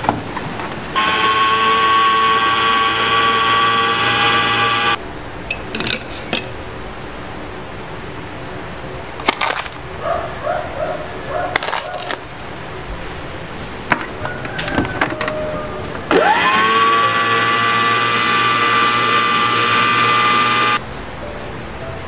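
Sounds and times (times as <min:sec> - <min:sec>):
room noise: 0:00.8 - 0:05.0, 0:14.6 - 0:20.8.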